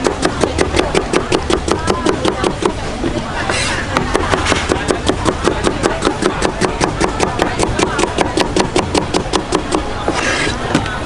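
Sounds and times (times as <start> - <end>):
cleaver chopping on wooden board: 0.0 - 2.8, 3.5 - 10.4
slices scraped off board: 3.5 - 4.7, 10.1 - 10.6.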